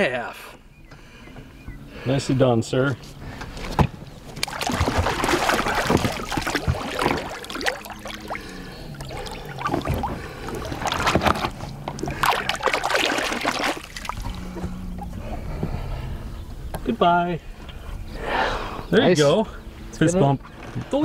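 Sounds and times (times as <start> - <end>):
water splashing against boat: 3.0 - 15.9.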